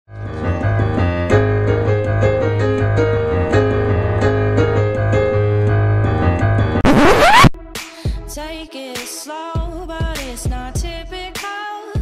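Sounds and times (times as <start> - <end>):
piano music with low bass: 0.1 - 7.2.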